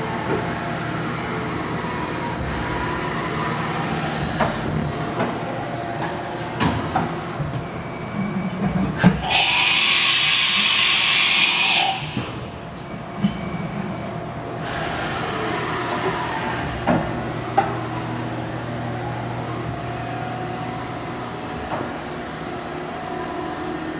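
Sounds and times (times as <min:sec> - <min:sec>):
machine hissing: 0:09.0 - 0:12.4.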